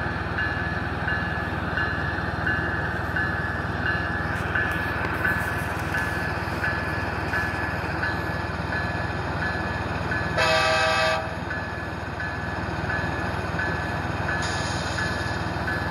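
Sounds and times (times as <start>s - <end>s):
low locomotive rumble: 0.0s - 15.9s
model locomotive horn blast: 10.3s - 11.4s.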